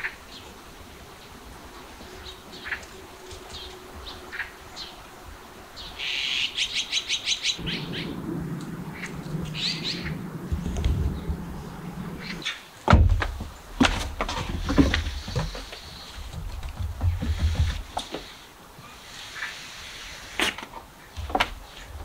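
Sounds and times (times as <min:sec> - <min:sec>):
wild birds chirping: 0:00.0 - 0:22.0
low steady hum: 0:07.6 - 0:15.2.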